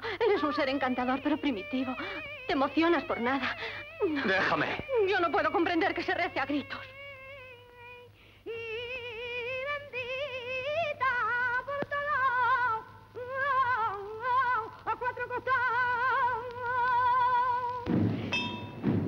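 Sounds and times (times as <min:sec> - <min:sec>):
person singing unaccompanied: 0:00.0 - 0:17.9
singer breathing: 0:08.1 - 0:08.5.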